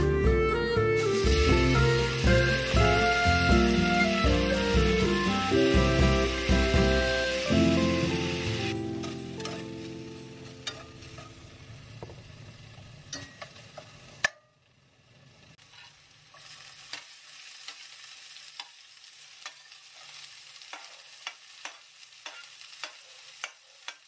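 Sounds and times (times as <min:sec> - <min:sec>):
food sizzling in a pan: 0:00.0 - 0:24.0
metal spatula scraping a pan: 0:09.0 - 0:09.9, 0:10.6 - 0:11.5, 0:15.6 - 0:24.0
spatula tapping a pan: 0:10.6 - 0:11.4, 0:13.1 - 0:14.5, 0:20.7 - 0:24.0.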